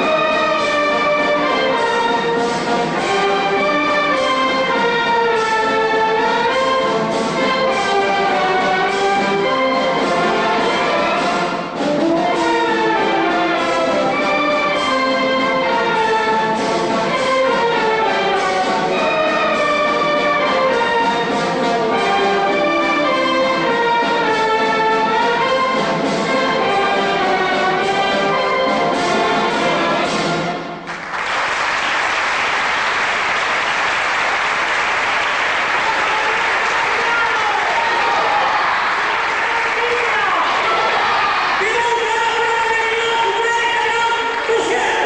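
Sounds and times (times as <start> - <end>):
brass and woodwind band playing: 0.0 - 30.8
audience applause: 30.8 - 42.1.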